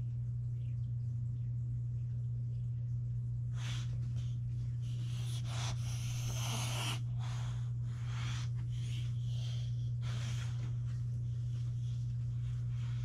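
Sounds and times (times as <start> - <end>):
steady low hum: 0.0 - 13.0
dog sniffing: 3.5 - 13.0.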